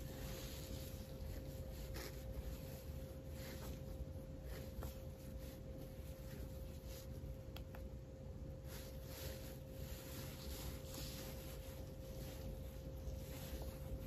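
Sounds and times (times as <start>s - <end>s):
faint steady hum: 0.0s - 14.0s
wipe rubbing on glass screen: 8.6s - 14.0s.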